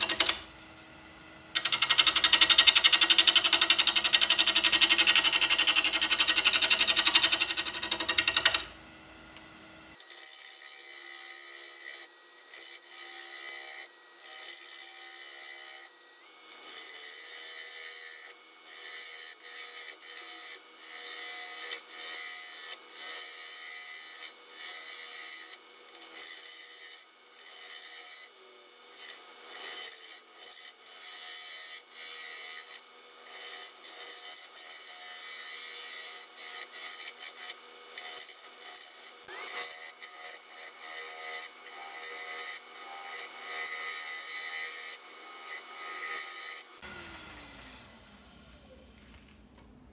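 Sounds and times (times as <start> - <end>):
lathe tool chattering: 1.6 - 8.6.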